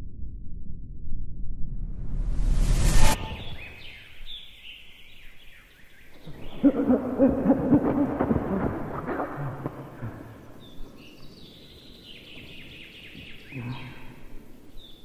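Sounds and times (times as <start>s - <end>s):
low rumbling whoosh: 0.0s - 4.3s
low hooting bird call: 3.0s - 15.0s
small birds chirping: 3.2s - 15.0s.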